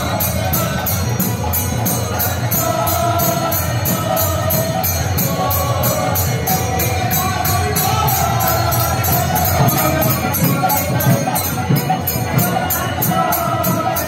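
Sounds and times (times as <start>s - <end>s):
hand cymbals: 0.0s - 14.0s.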